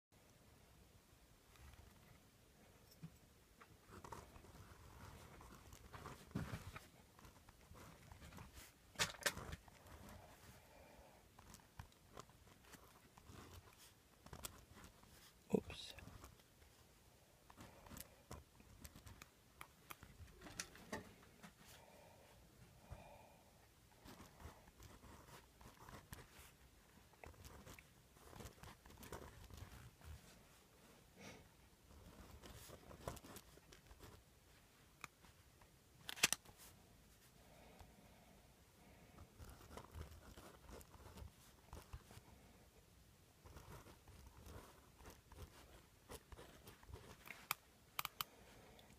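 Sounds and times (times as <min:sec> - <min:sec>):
pens scratching on paper: 0:11.2 - 0:15.4, 0:24.0 - 0:30.4, 0:39.2 - 0:42.3, 0:43.4 - 0:47.5.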